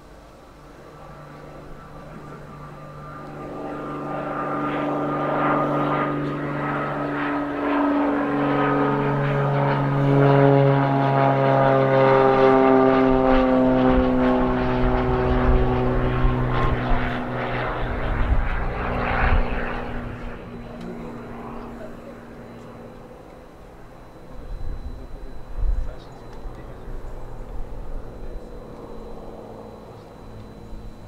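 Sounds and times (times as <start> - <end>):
propeller plane engine at takeoff power: 0.0 - 31.0.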